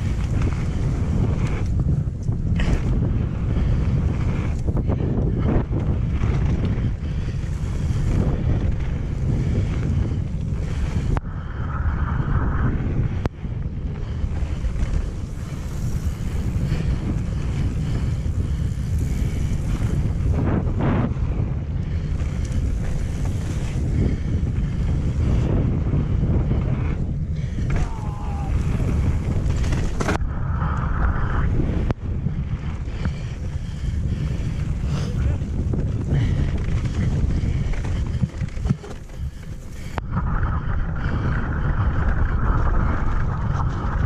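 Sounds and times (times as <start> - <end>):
bike tyres rolling on gravel: 0.0 - 44.0
wind buffeting microphone: 0.0 - 44.0
sharp bike clicks: 13.2 - 40.1.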